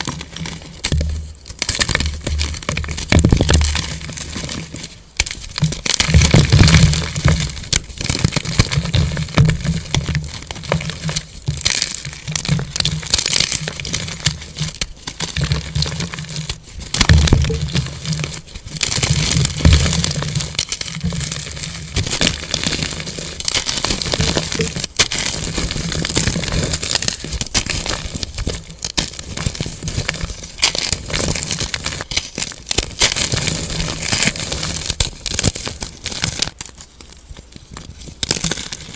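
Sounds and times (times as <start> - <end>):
chalk chunks cracking: 0.0 - 38.9.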